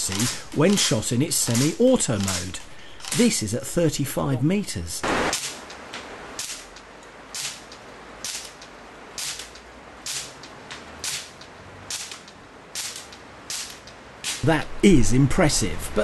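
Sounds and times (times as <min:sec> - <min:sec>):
air rifle shots: 0:05.0 - 0:05.7, 0:07.3 - 0:08.6, 0:09.2 - 0:10.4, 0:11.0 - 0:14.5.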